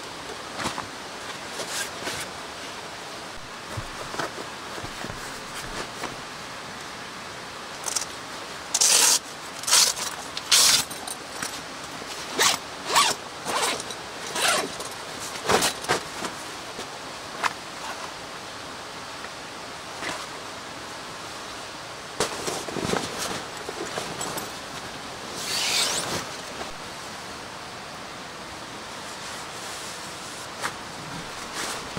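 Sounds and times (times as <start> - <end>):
canvas scratchy rasps: 0.6 - 2.3, 3.4 - 6.2, 8.7 - 10.9, 12.2 - 16.4, 25.3 - 26.8, 29.1 - 31.9.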